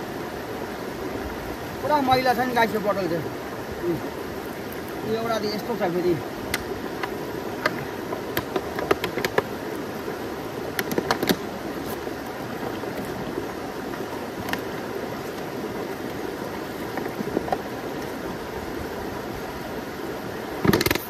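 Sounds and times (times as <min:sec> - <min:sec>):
mountain stream flowing: 0:00.0 - 0:21.0
plastic bottle clicking and knocking: 0:07.6 - 0:09.5, 0:20.6 - 0:21.0.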